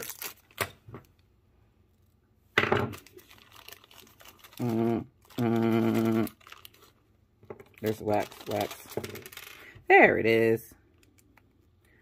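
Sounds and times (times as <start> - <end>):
plastic bag crinkling: 0.0 - 0.8, 2.9 - 7.0, 7.6 - 9.8
low steady hums: 0.0 - 12.0.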